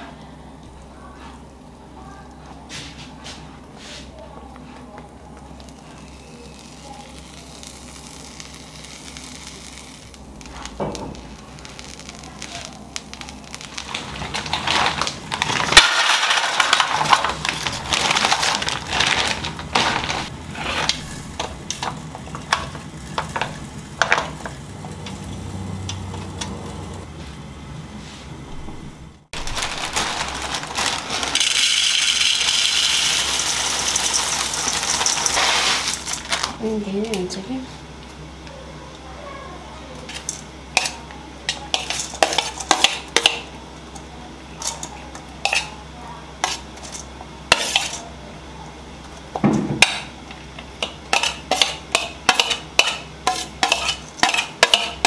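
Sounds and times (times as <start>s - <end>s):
puffed rice poured into steel bowl: 11.5s - 21.0s, 29.4s - 36.5s.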